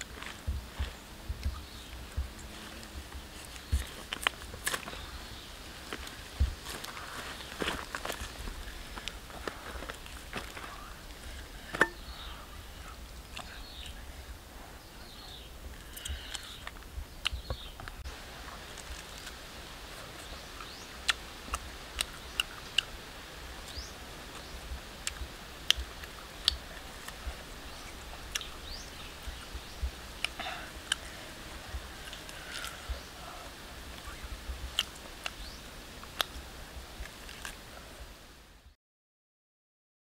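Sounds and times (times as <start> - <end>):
teeth clicking on bone: 28.3 - 28.5.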